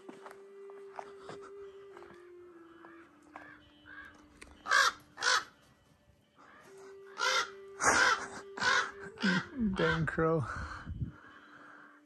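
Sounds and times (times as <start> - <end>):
crows cawing: 2.8 - 5.6, 6.4 - 10.5.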